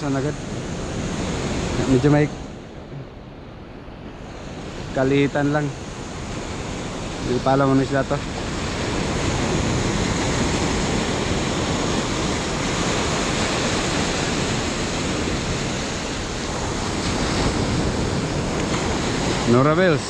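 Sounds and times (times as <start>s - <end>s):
small surf breaking on beach: 4.1s - 20.0s
foamy wash running up sand: 4.2s - 20.0s.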